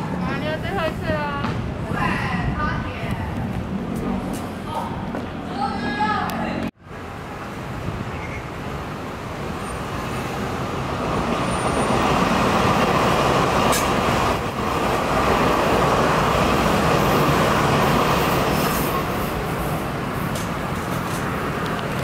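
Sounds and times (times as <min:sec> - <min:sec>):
train wheels rumbling on track: 0:07.4 - 0:22.0.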